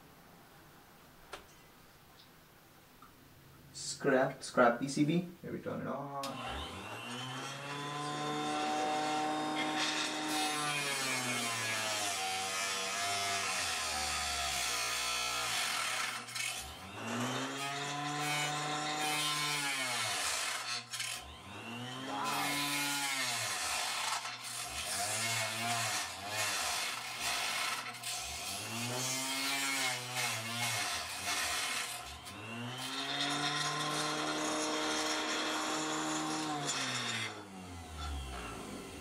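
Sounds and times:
table saw grinding circuit board: 6.2s - 39.0s
saw motor whine: 6.3s - 39.0s.

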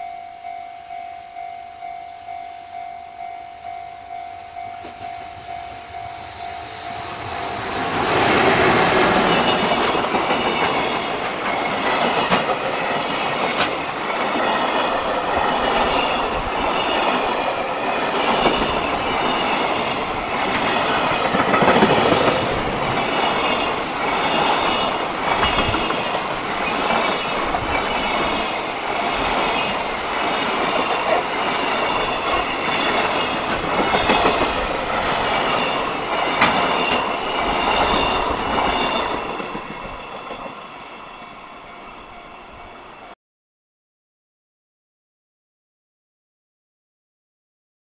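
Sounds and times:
train wheels clattering over rail joints: 18.1s - 40.4s.

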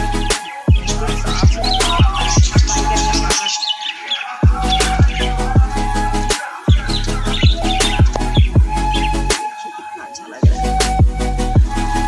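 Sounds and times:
held music tones: 0.0s - 12.0s
booming bass drum: 6.7s - 8.8s.

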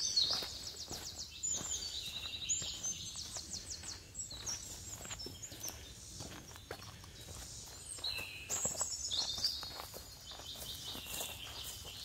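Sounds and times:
footsteps on rocky dirt trail: 0.0s - 12.0s
wildlife chirping and trilling: 0.0s - 12.0s.

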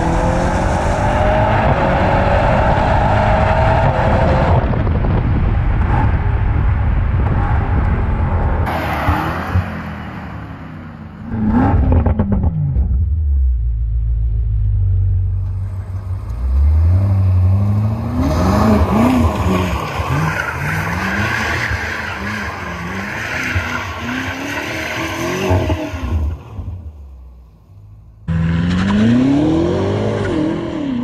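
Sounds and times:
car engine revving: 5.7s - 27.0s, 28.2s - 31.0s.

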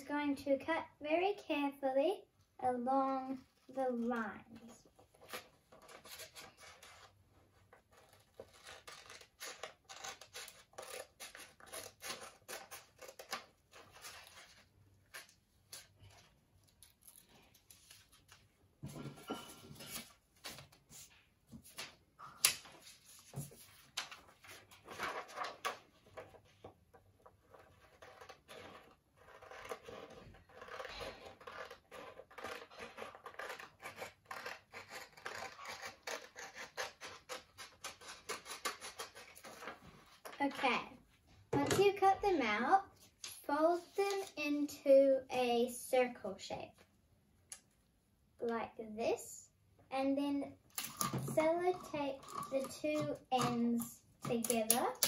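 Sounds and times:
scissors snipping paper: 7.7s - 17.8s, 27.4s - 39.8s.

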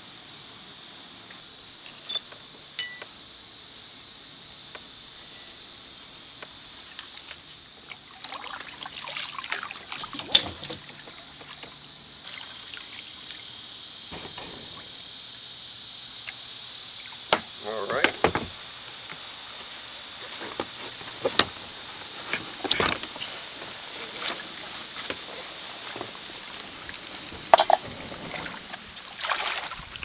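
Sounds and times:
insects chorus: 0.0s - 30.0s
sharp clicks and knocks: 14.1s - 15.4s
paddle splashing in water: 27.4s - 30.0s.

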